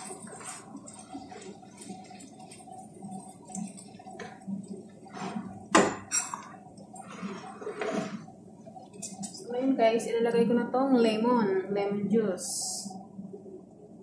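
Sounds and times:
wooden spoon scraping rice in pan: 0.0s - 1.9s, 5.0s - 5.6s, 7.0s - 8.3s.

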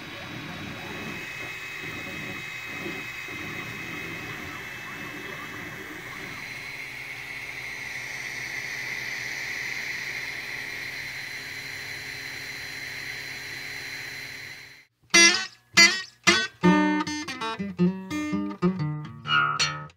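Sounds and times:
printer mechanical whir: 0.0s - 14.9s
faint high motor tone: 0.0s - 15.4s
strummed acoustic guitar music: 15.1s - 19.9s.

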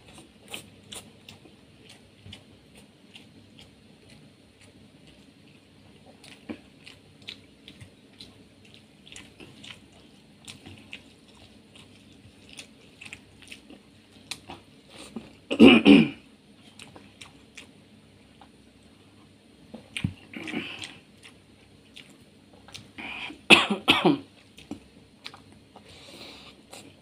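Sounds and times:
wet mouth clicks and chewing: 0.1s - 15.4s, 16.7s - 17.8s, 19.7s - 23.0s, 24.5s - 25.8s.

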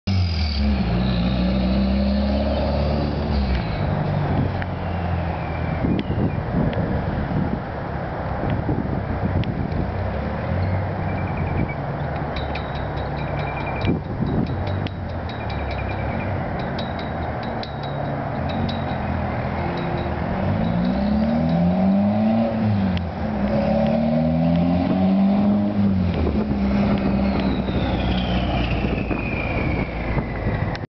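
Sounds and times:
loud raw car engine revving: 0.1s - 4.6s, 19.2s - 29.4s
loud car exhaust rumble: 0.1s - 30.8s.

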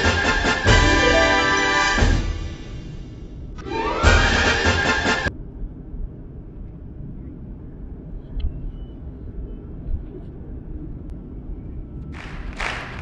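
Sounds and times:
jet engine cabin rumble: 5.3s - 13.0s.

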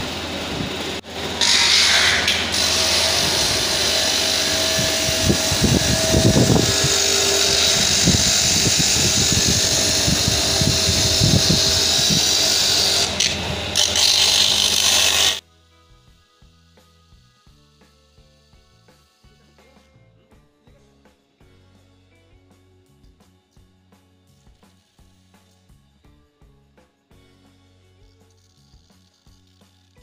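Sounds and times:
lathe motor whine: 0.0s - 15.4s
stone grinding acrylic: 6.6s - 15.4s.

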